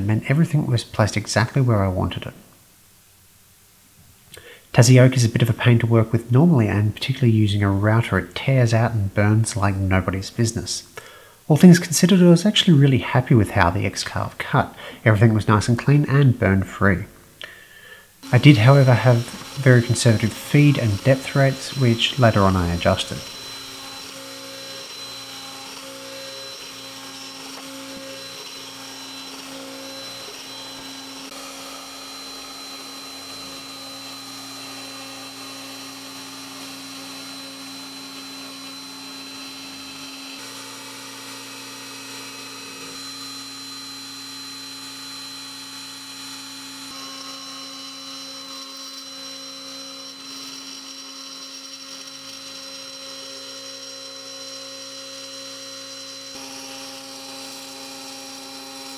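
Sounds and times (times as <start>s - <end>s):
router spindle whining: 18.2s - 58.9s.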